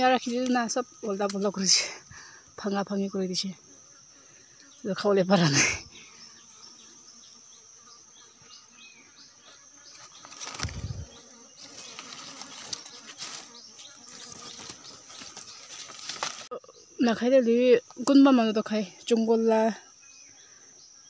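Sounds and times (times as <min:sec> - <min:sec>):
forest insects buzzing: 0:00.0 - 0:21.0
footsteps rustling dry leaves: 0:10.0 - 0:16.5.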